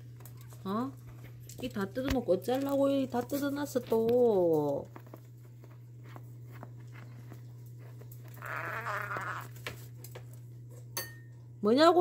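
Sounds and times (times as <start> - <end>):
steady low hum: 0.0 - 12.0
parrot raspy grumble: 8.3 - 9.6.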